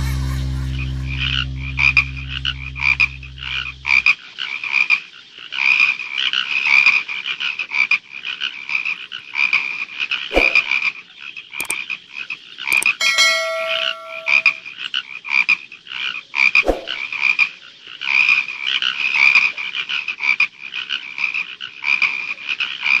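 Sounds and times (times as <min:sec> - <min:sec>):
frogs croaking: 0:03.9 - 0:12.8, 0:14.9 - 0:23.0
short ringing chime: 0:12.7 - 0:14.6.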